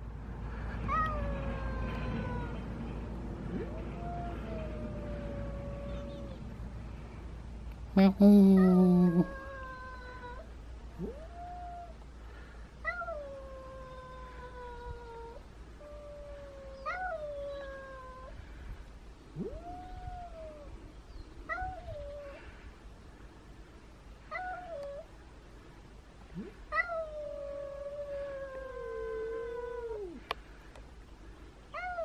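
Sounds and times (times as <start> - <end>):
cat yowling: 3.5 - 6.4, 8.5 - 12.0, 12.8 - 18.3, 21.5 - 22.4, 24.3 - 25.1, 26.4 - 30.2, 31.8 - 32.0.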